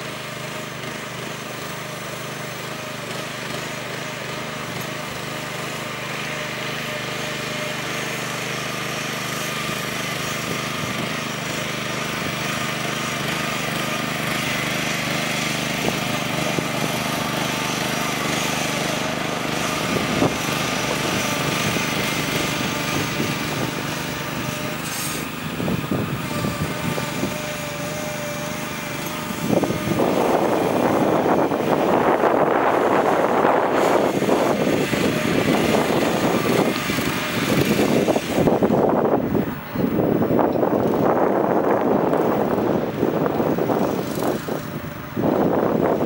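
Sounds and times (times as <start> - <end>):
small gasoline engine running: 0.0 - 46.0
wind buffeting microphone: 10.2 - 46.0.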